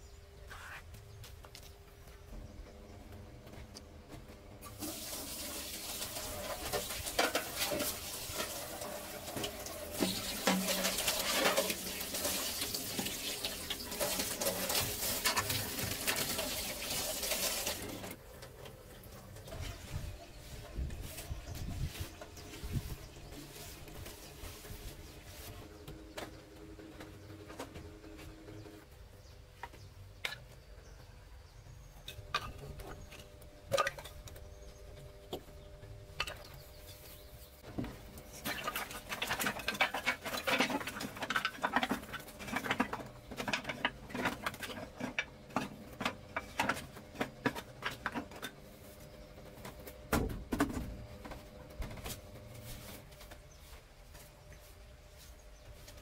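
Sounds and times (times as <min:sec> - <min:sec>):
wooden offcuts clattering: 0:37.7 - 0:48.6.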